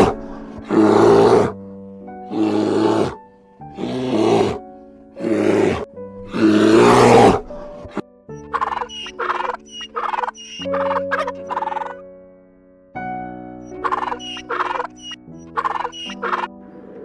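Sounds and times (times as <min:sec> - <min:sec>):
bear growling: 0:00.0 - 0:01.6, 0:02.3 - 0:04.6, 0:05.2 - 0:08.0
gentle piano music: 0:00.0 - 0:17.0.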